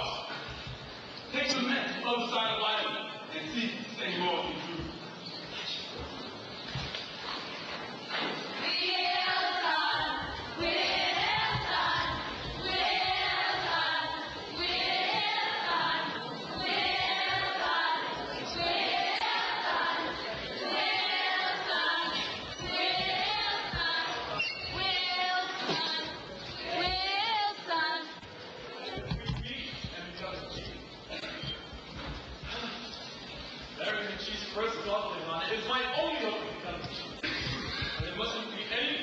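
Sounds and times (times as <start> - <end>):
group singing in chorus: 8.6 - 28.3.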